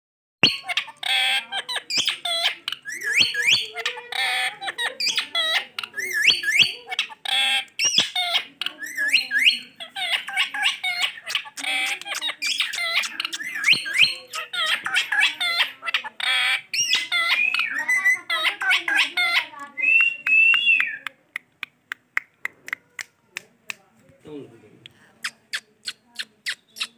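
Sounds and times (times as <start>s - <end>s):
parakeet mimicking talking: 0.4s - 20.0s, 25.2s - 26.9s
parakeet squawking and whistling: 0.4s - 21.0s, 25.2s - 26.9s.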